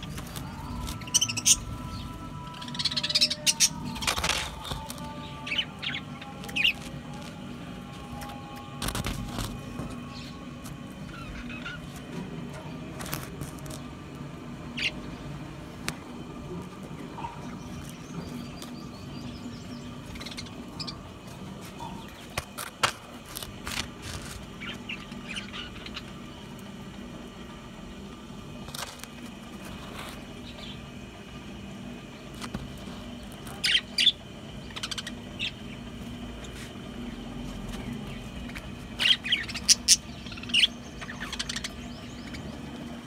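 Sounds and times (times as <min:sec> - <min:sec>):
low steady hum: 0:00.0 - 0:43.0
budgerigars chirping: 0:39.0 - 0:42.6.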